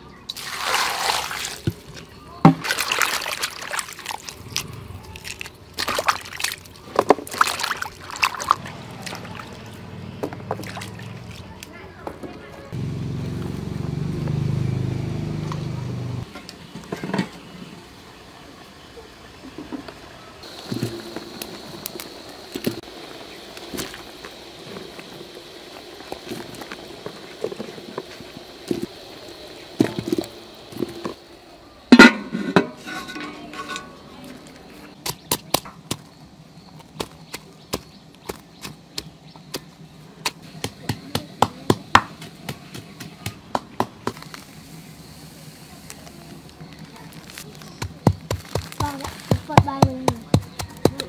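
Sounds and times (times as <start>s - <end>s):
pot lid clang: 31.9s - 34.0s.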